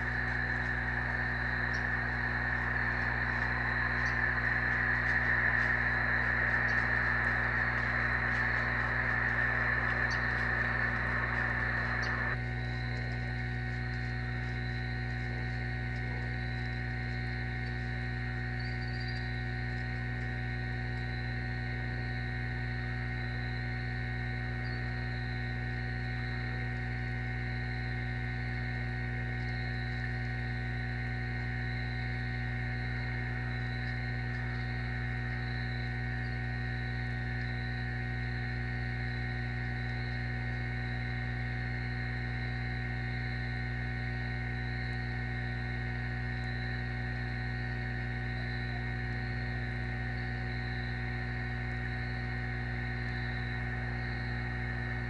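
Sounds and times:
electrical hum: 0:00.0 - 0:55.0
faint high-pitched whine: 0:00.0 - 0:55.0.

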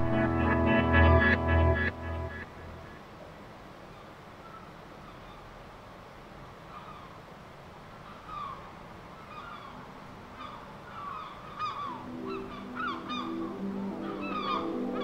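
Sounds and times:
soft music with held notes: 0:00.0 - 0:02.9, 0:11.8 - 0:15.0
waterbirds honking: 0:10.4 - 0:15.0.

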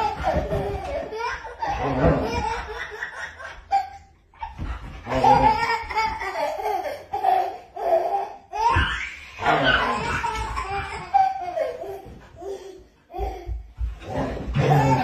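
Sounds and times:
toddler laughing: 0:00.0 - 0:15.0.

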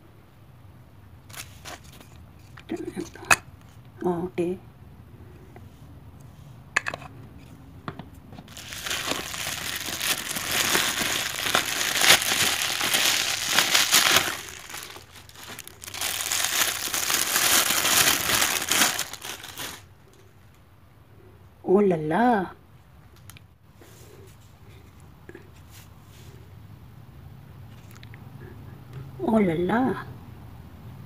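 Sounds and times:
plastic wrapping crinkling: 0:01.3 - 0:02.5, 0:08.4 - 0:19.9.

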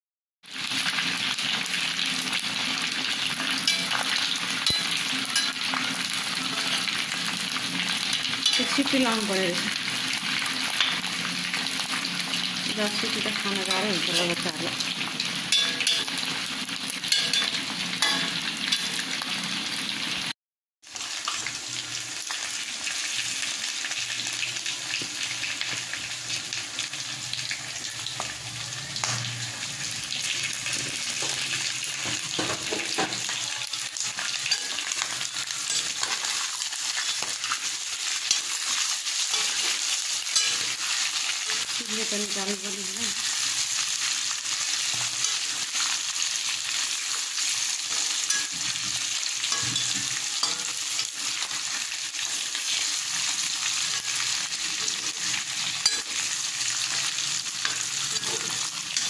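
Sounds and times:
meat sizzling in oil: 0:00.4 - 0:59.0
metal spatula scraping pan: 0:03.2 - 0:08.9, 0:15.2 - 0:16.4, 0:17.0 - 0:19.0, 0:30.7 - 0:37.6, 0:38.2 - 0:41.8, 0:47.9 - 0:51.4, 0:53.9 - 0:59.0.

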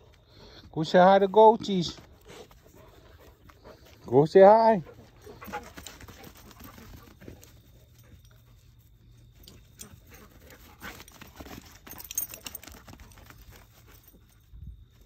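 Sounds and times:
paws thudding on sandy dirt: 0:01.4 - 0:08.9, 0:09.5 - 0:15.0.

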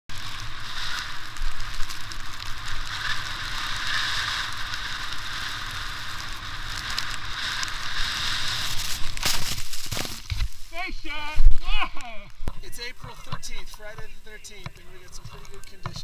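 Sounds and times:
hiss of sliding through powder snow: 0:00.1 - 0:11.9
snow crackles: 0:00.1 - 0:16.0.

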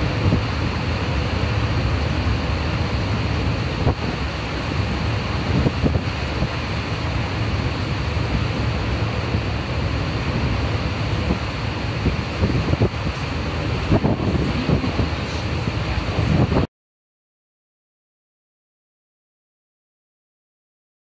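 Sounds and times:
large waterfall rushing: 0:00.0 - 0:16.7
wind buffeting microphone: 0:00.0 - 0:16.7.

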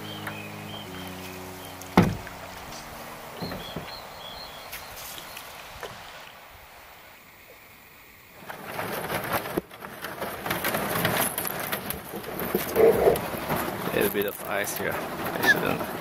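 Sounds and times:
small bird calling: 0:00.0 - 0:06.0, 0:12.7 - 0:13.3
canoe paddling on water: 0:00.0 - 0:16.0
paddle knocks: 0:01.8 - 0:04.1
canoe breaking through ice: 0:08.3 - 0:16.0.

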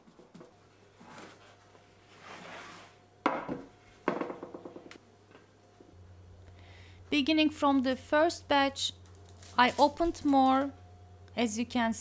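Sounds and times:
hands rustling dough on paper: 0:09.2 - 0:10.7.

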